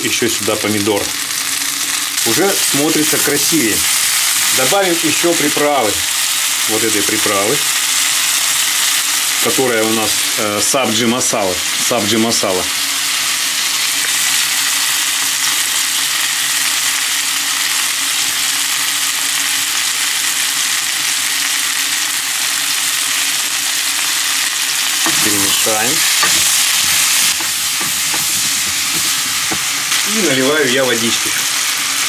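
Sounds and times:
vegetables sizzling in hot oil: 0:00.0 - 0:32.0
wooden spatula stirring: 0:25.0 - 0:29.8.

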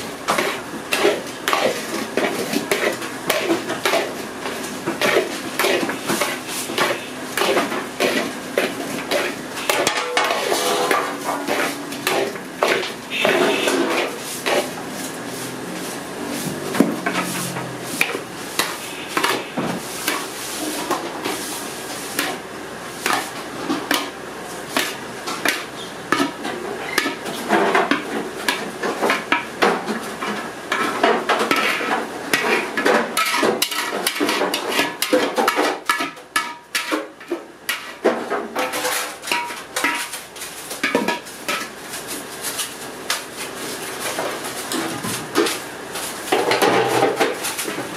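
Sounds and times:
metal spatula scraping brass pot: 0:09.2 - 0:14.7.

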